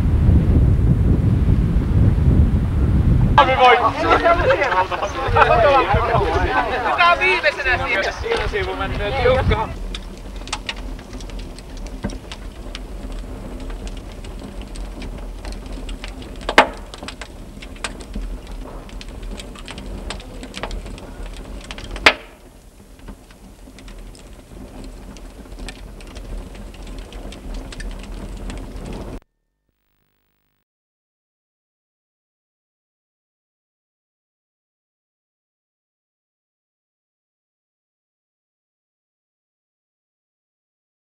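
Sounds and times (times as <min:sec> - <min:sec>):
loud fire pops: 0:00.0 - 0:29.2
wood fire crackling: 0:00.4 - 0:29.2.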